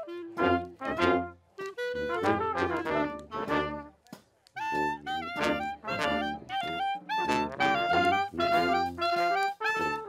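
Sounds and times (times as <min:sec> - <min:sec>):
brass street band playing: 0:00.0 - 0:04.0, 0:04.6 - 0:10.0
clarinet: 0:00.0 - 0:10.0
sousaphone bass: 0:04.7 - 0:09.2.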